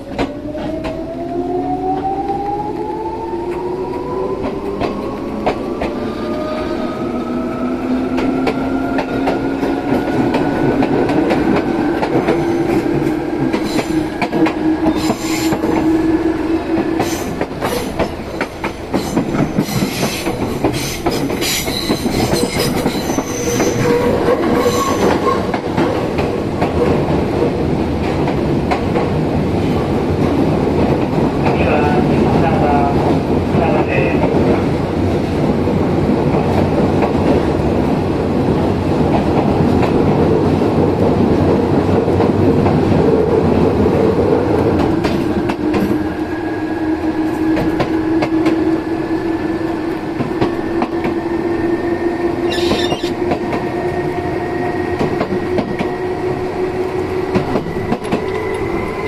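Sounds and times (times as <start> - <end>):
train wheels clattering: 16.8 - 29.1.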